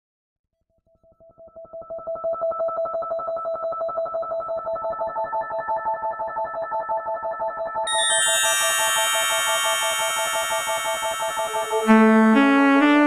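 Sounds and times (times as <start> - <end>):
synthesizer tones with tremolo: 7.9 - 13.0.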